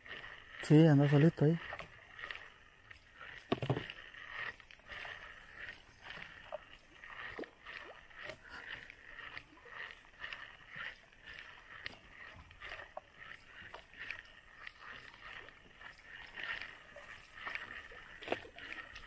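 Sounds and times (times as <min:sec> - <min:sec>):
insects chirring: 0:03.5 - 0:08.7.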